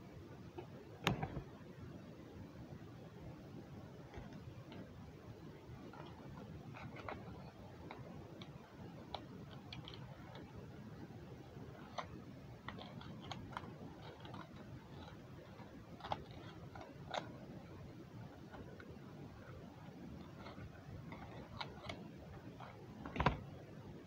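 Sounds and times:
low room hum: 0:00.0 - 0:24.0
small clicks and ticks: 0:05.7 - 0:10.7, 0:11.7 - 0:23.4.

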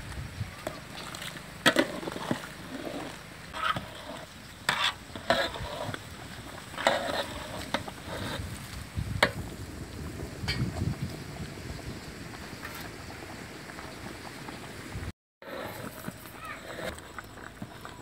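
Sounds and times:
ladle scraping a metal pot: 0:00.6 - 0:08.7.

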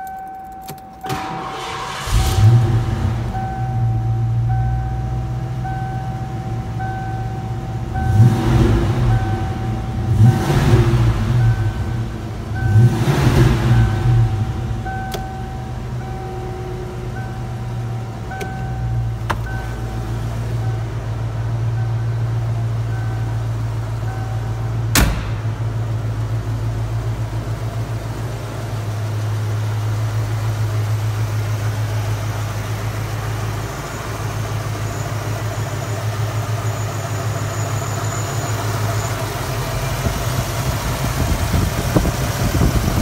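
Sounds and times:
warning chime: 0:00.0 - 0:01.7, 0:03.1 - 0:24.9
car engine starting and idling: 0:00.0 - 0:43.0
car engine revving: 0:01.0 - 0:04.5, 0:05.2 - 0:31.2.

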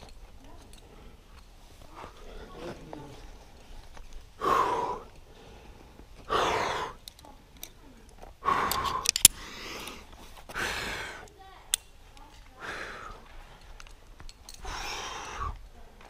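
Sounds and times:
forceful exhalations: 0:04.4 - 0:07.0, 0:08.4 - 0:11.3, 0:12.5 - 0:13.6, 0:14.5 - 0:15.7.

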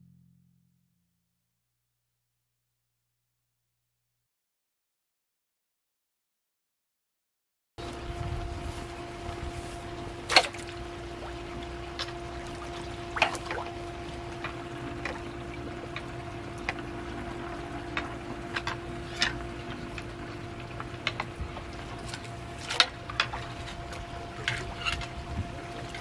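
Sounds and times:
pond water sloshing and splashing: 0:07.8 - 0:26.0
steady hum: 0:07.8 - 0:26.0.

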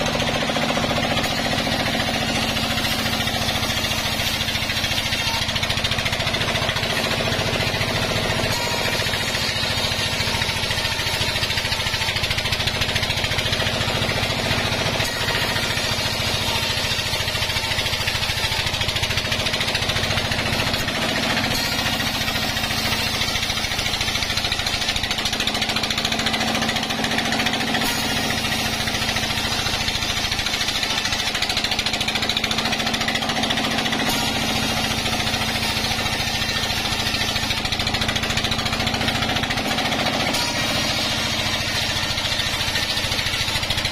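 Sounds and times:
band saw cutting log: 0:00.0 - 0:43.9.

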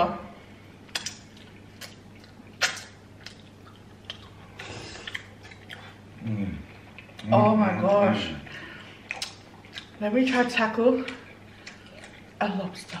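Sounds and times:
wet chewing and mouth smacks: 0:00.9 - 0:06.1, 0:09.0 - 0:13.0.

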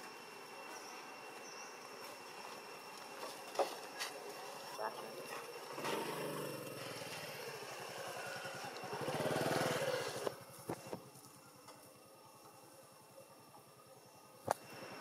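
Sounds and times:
vehicle engine passing by: 0:05.7 - 0:10.3.

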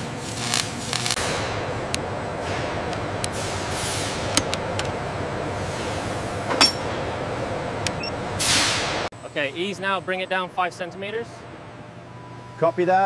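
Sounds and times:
air hissing: 0:00.0 - 0:09.1
machinery hum: 0:00.0 - 0:13.0.

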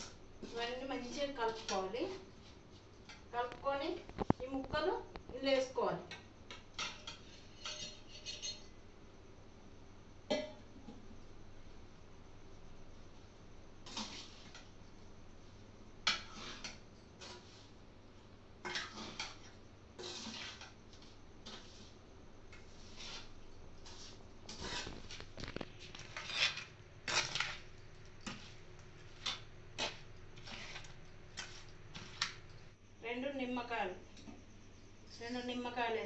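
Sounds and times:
spoon scraping metal pan: 0:00.0 - 0:02.2, 0:06.8 - 0:08.7, 0:13.8 - 0:14.6, 0:16.1 - 0:17.7, 0:18.6 - 0:21.9, 0:22.6 - 0:32.4.

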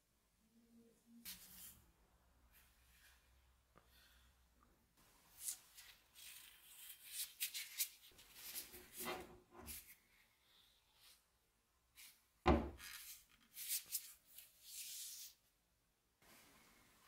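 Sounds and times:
rubber gloves rubbing on metal: 0:07.6 - 0:09.9.

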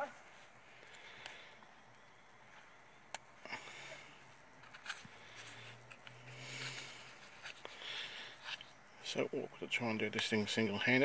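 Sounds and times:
light clicks and scrapes: 0:04.6 - 0:08.8.

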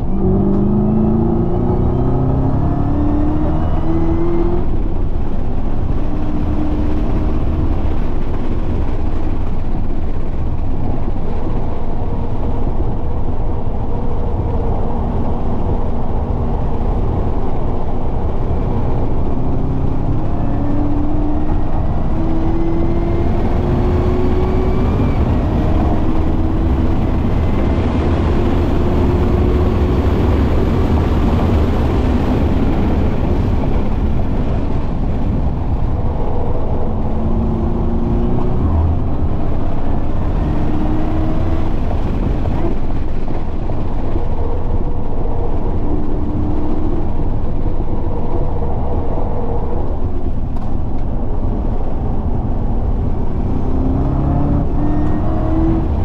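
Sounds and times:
car engine at full throttle: 0:00.0 - 0:56.0
wind and road noise: 0:00.0 - 0:56.0.

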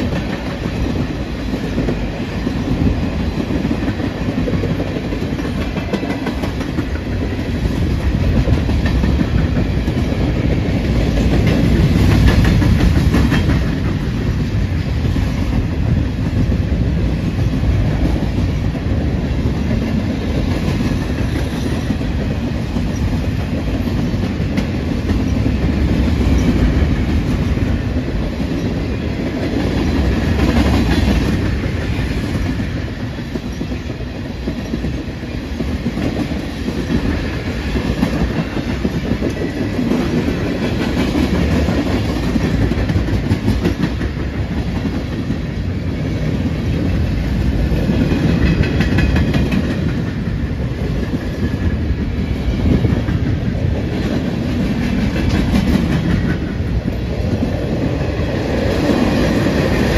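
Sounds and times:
wheels clacking on rail joints: 0:00.0 - 0:14.5, 0:46.8 - 0:59.9
freight train rumbling past: 0:00.0 - 0:59.9.

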